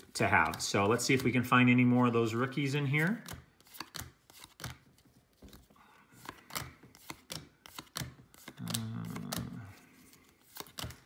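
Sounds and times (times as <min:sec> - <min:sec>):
cards flicking: 0:03.2 - 0:05.6, 0:06.2 - 0:11.0
person humming: 0:08.4 - 0:09.9.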